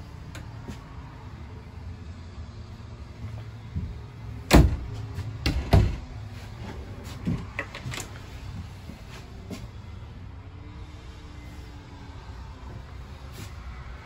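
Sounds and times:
wooden cabinet doors shutting: 4.5 - 6.1.

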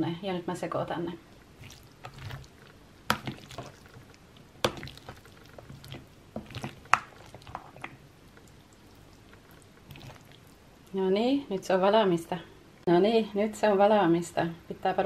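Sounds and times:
wet squelching of pasta stirring: 1.4 - 11.0.

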